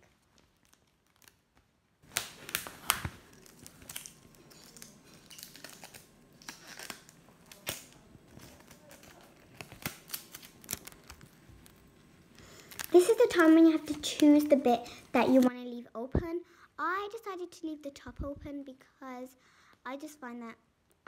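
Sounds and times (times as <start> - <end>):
paper crinkling: 0.0 - 14.5.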